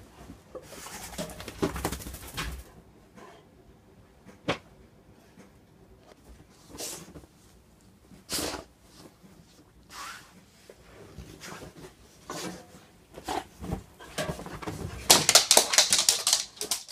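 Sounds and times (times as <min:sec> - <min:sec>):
dog claws clicking on wooden floor: 0:15.1 - 0:16.9.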